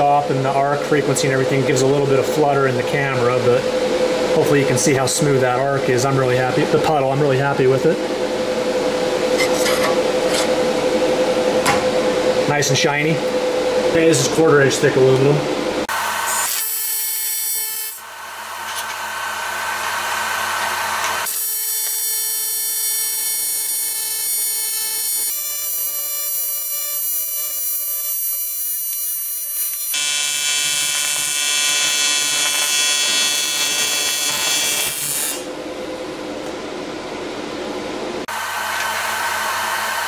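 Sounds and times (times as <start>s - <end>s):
welding arc buzzing: 15.8s - 36.0s, 38.2s - 40.0s.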